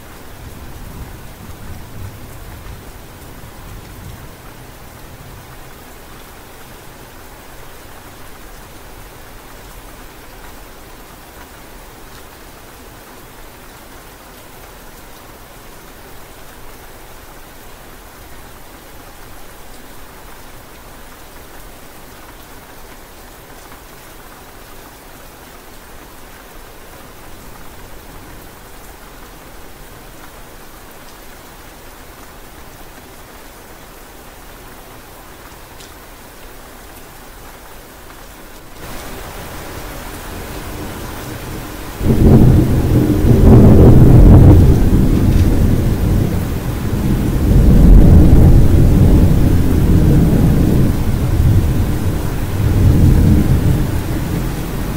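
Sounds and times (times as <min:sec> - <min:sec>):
steady rain falling: 0:00.0 - 0:54.9
thunder rumbling: 0:38.8 - 0:54.9.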